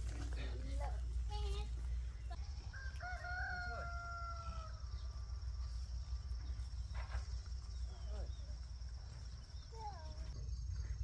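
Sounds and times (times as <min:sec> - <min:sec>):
rooster crowing: 0:02.4 - 0:05.7.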